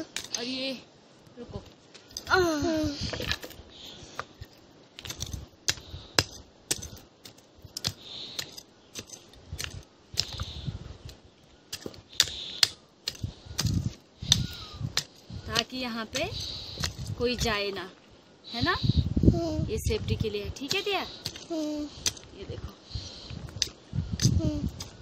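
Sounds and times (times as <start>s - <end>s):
tool clinking against stones: 0.0s - 0.4s, 2.0s - 2.4s, 3.0s - 10.4s, 11.7s - 17.6s, 20.6s - 22.3s
hand tool digging stony soil: 2.0s - 17.8s, 20.4s - 22.3s, 23.0s - 25.0s.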